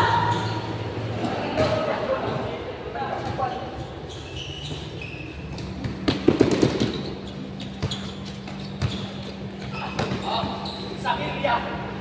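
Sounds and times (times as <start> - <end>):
basketball bouncing on concrete: 5.5 - 9.1.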